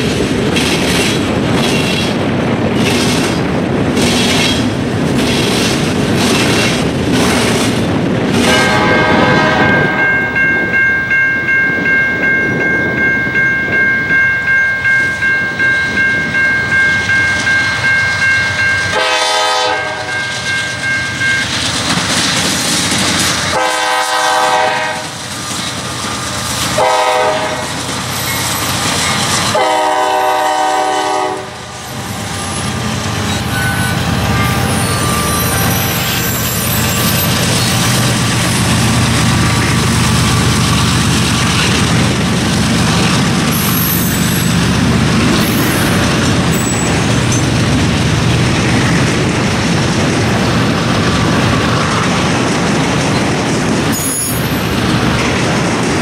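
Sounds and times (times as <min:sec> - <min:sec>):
train wheels clicking over rail joints: 0:00.0 - 0:08.7, 0:20.3 - 0:30.0, 0:31.9 - 0:56.0
locomotive air horn: 0:08.4 - 0:10.1, 0:18.9 - 0:20.3, 0:23.5 - 0:25.2, 0:26.8 - 0:27.8, 0:29.5 - 0:31.8
pulsing ringing tone: 0:09.7 - 0:19.0.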